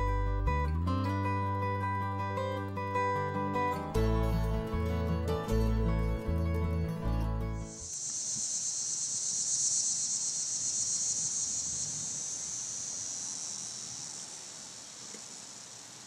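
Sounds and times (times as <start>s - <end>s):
insect chorus buzzing: 7.6s - 16.0s.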